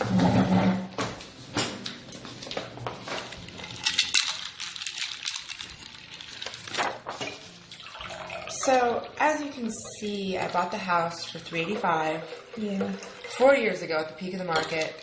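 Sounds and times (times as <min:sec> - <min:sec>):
cocktail shaker and glasses clinking: 0:03.4 - 0:06.6.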